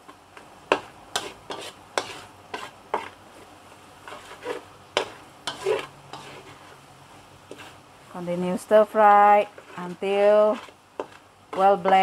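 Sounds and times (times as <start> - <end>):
metal spatula scraping a wok: 0.0 - 6.9, 7.5 - 7.8, 9.3 - 12.0
curry paste sizzling: 0.0 - 12.0.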